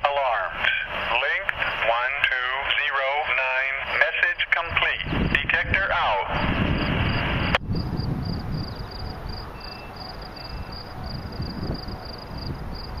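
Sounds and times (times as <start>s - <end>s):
wind on microphone: 4.6s - 13.0s
insect chirping: 6.4s - 13.0s.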